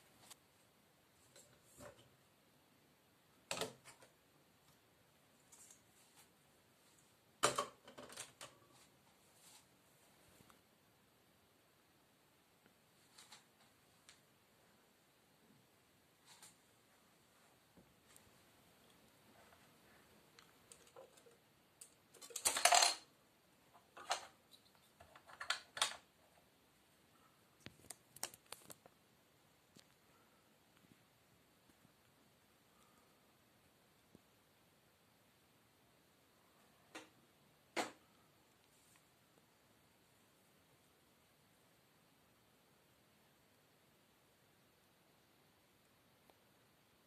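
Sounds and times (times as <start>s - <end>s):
plastic toy pieces clicking: 21.8s - 23.0s.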